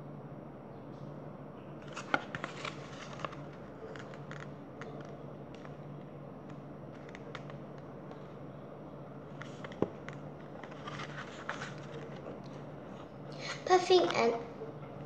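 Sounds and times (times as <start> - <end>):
faint low hum: 0.0 - 15.0
book pages turning: 1.8 - 5.8, 6.4 - 8.4, 9.3 - 14.2.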